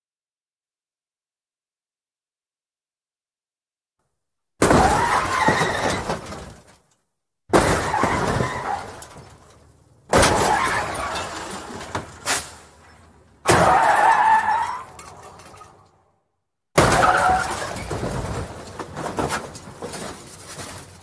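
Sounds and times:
car crash impacts: 4.6s - 6.8s, 7.5s - 16.0s, 16.8s - 21.0s
glass breaking: 7.5s - 15.7s, 16.8s - 18.6s.

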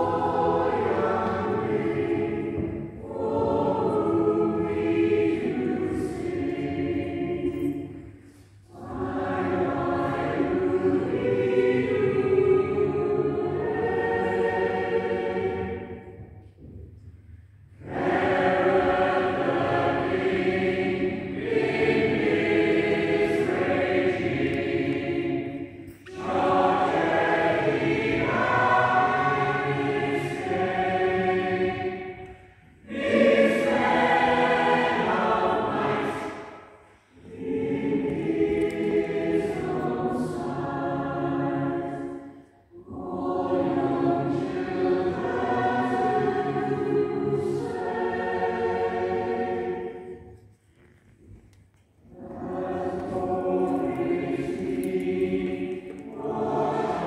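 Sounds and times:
choir singing: 0.0s - 16.3s, 17.7s - 50.5s, 52.0s - 57.0s.

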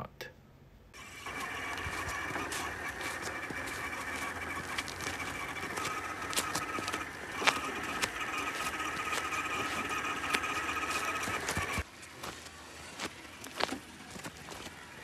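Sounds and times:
toy car motor gear whine: 1.0s - 11.9s.

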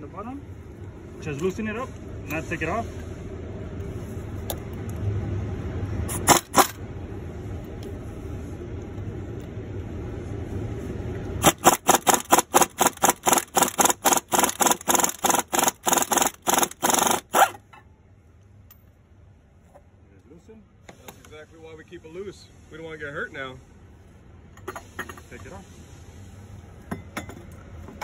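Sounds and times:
low steady hum: 0.0s - 28.0s
pneumatic wrench bursts: 6.1s - 6.8s, 11.4s - 17.6s.

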